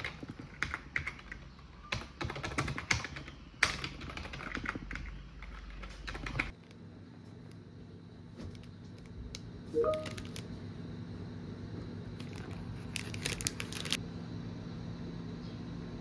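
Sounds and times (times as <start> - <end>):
steady low hum: 4.8 - 16.0
plastic wrapper crinkling: 9.9 - 10.5, 12.2 - 14.0.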